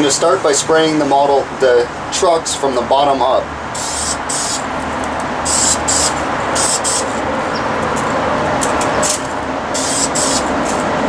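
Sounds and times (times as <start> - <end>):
freeway traffic rumble: 0.0 - 11.0
spray can hissing: 3.8 - 4.6, 5.5 - 7.2, 9.7 - 10.6.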